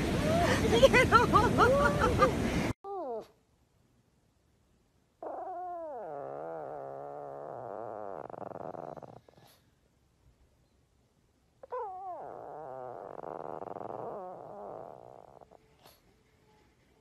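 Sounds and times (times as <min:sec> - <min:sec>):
dog moaning and grumbling: 0:02.9 - 0:03.4, 0:05.2 - 0:09.7, 0:11.6 - 0:16.0.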